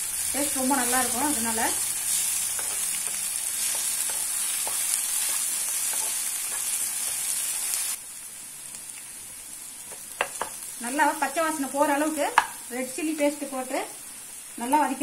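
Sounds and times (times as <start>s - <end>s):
onions sizzling in hot oil: 0.0s - 15.0s
wooden spatula scraping: 2.1s - 7.4s.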